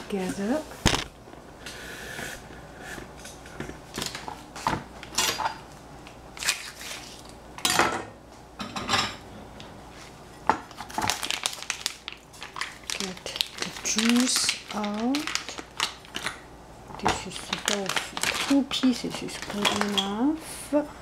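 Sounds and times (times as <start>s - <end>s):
plastic package cut open: 10.7s - 16.4s, 17.5s - 18.6s.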